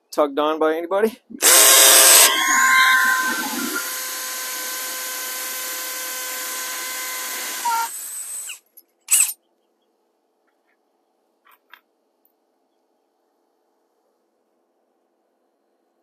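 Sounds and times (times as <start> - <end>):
cordless drill motor whine: 1.4 - 9.3.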